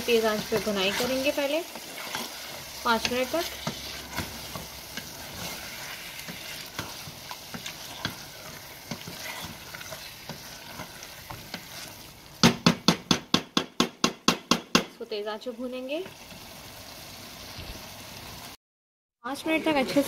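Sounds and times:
wooden spatula stirring and scraping: 0.0s - 12.4s
food sizzling in a pot: 0.0s - 18.6s.

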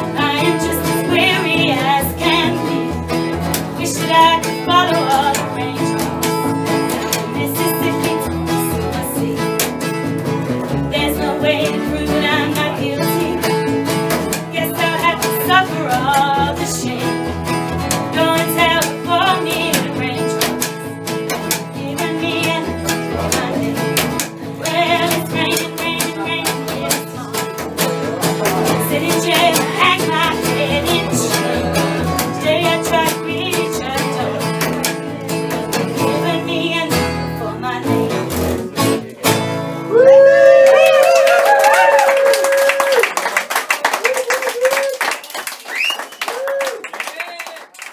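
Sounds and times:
plucked double bass: 0.0s - 39.9s
acoustic guitar strummed and picked: 0.0s - 43.1s.

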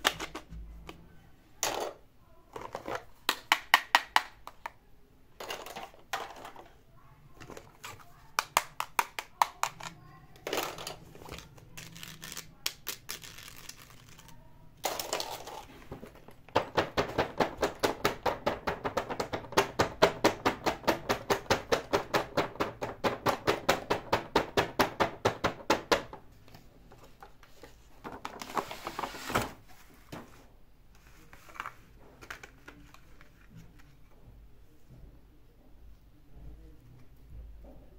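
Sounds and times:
fingers tapping on package: 16.5s - 26.1s.

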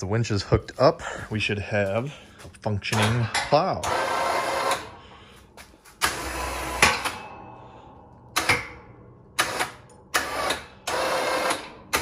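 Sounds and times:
electric winch motor: 3.8s - 4.9s, 6.0s - 7.2s, 9.4s - 12.0s.

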